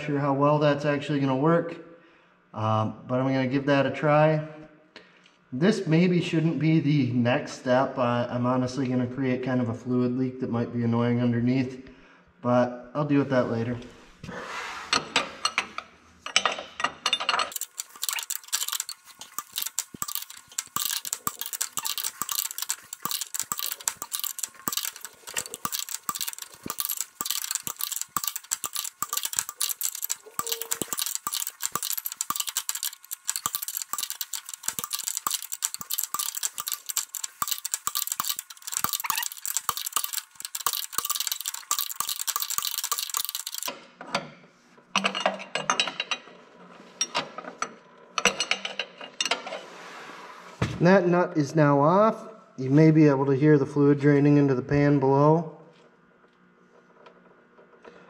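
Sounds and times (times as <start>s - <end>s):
tool handling: 16.3s - 43.8s
wrench metallic clicks: 17.5s - 43.8s.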